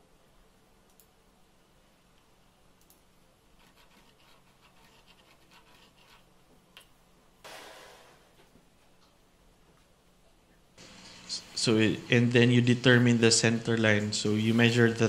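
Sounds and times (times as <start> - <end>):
click: 0.9 - 1.1, 2.2 - 3.0
pen scratching on tape: 3.6 - 6.3.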